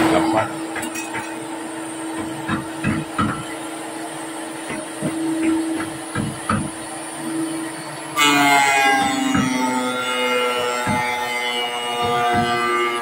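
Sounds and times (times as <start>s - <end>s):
planer motor hum and whine: 0.0s - 13.0s
wooden knocks of boards: 2.2s - 3.5s, 4.7s - 6.7s, 10.8s - 11.2s, 12.0s - 12.8s.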